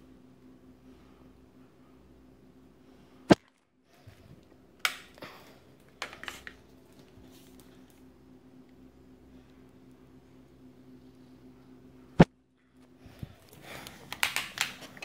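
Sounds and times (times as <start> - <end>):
faint steady hum: 0.0 - 15.0
knocks and clatters of handling: 5.9 - 7.2.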